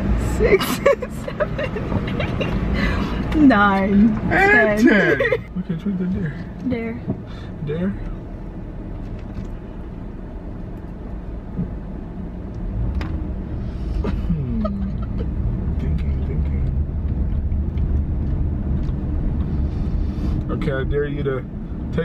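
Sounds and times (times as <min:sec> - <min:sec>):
car engine and road rumble: 0:00.0 - 0:22.0.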